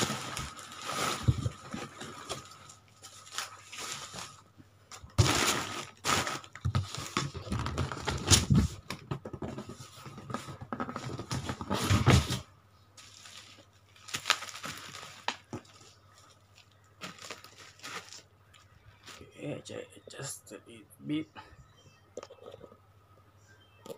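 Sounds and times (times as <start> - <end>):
packaging rustling and crinkling: 0.0 - 19.2.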